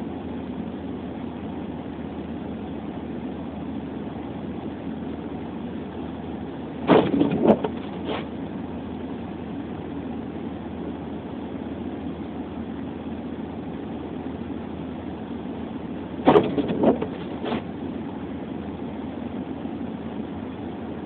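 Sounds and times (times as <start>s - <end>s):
car cabin hum: 0.1s - 21.0s
sharp knocks: 6.9s - 8.2s, 16.2s - 17.6s.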